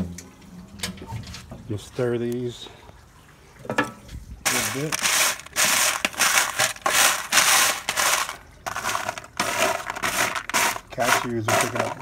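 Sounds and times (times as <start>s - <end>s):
wooden spoon stirring nuts in foil pan: 4.5s - 12.0s.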